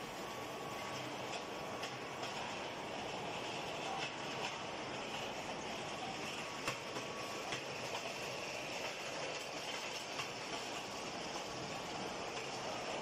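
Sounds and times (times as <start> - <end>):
rolling machinery noise: 0.0 - 13.0.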